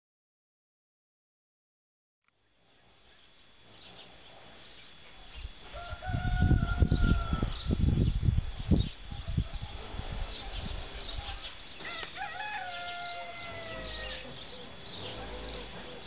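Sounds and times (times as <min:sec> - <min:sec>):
small birds chirping: 0:02.3 - 0:16.0
rooster crowing: 0:05.7 - 0:07.7, 0:11.8 - 0:14.6.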